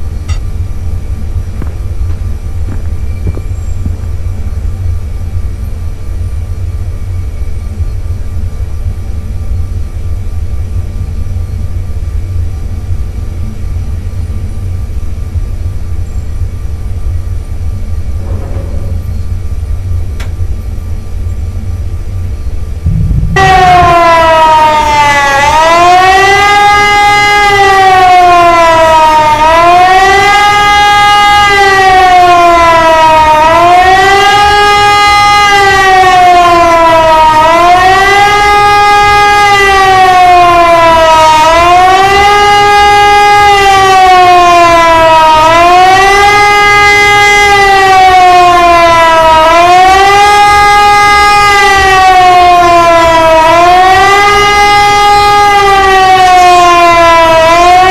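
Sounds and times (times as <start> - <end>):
siren-like wail: 22.8 - 57.9.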